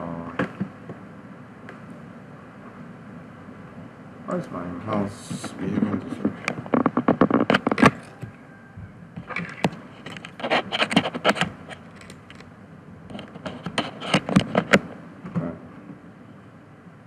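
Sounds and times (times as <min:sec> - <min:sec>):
mouse scraping on desk: 0:09.2 - 0:12.4, 0:13.1 - 0:14.9
computer mouse clicking: 0:09.3 - 0:12.5.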